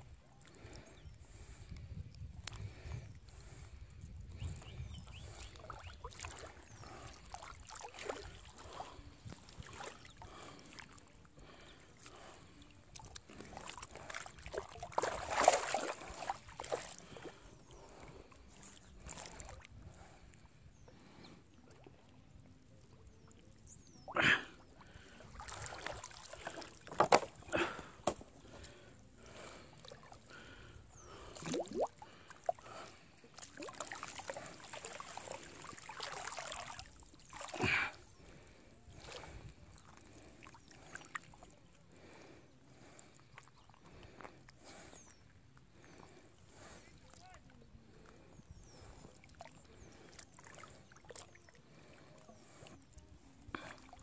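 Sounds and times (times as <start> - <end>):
river water sloshing and splashing: 5.1 - 20.4, 23.9 - 47.6, 48.6 - 54.0.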